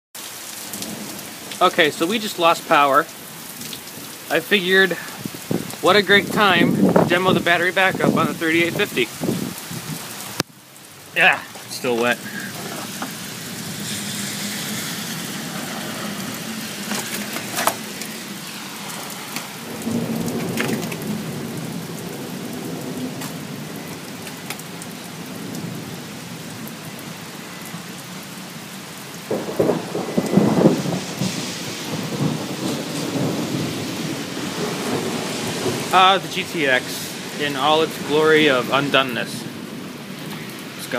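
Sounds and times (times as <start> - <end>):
steady rain: 0.2 - 40.9
rolling thunder: 4.9 - 10.1, 12.0 - 26.2, 29.2 - 38.7.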